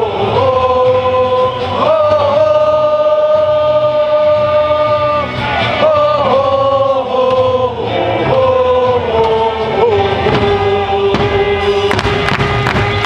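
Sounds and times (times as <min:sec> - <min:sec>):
cheer song over sound system: 0:00.0 - 0:13.0
crowd singing along: 0:00.0 - 0:13.0.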